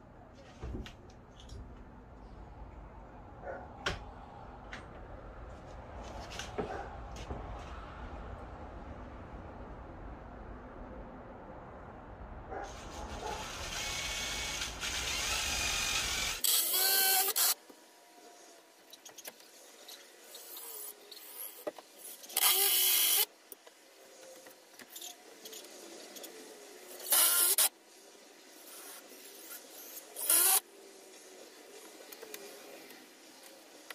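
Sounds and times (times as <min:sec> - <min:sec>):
cordless drill driving screws: 0:13.4 - 0:17.6, 0:22.4 - 0:23.3, 0:27.0 - 0:27.7, 0:28.8 - 0:30.6.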